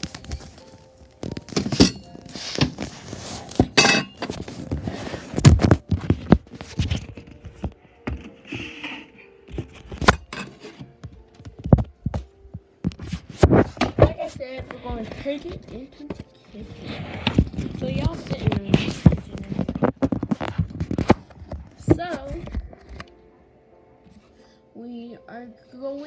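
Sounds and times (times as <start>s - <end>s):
fabric rustling: 0.0s - 7.6s.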